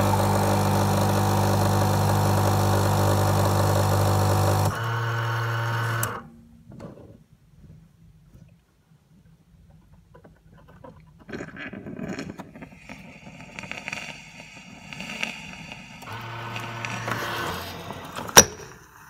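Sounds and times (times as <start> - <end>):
espresso machine rattling and whirring: 0.0 - 6.1, 12.7 - 18.2
low buzz: 14.6 - 18.4.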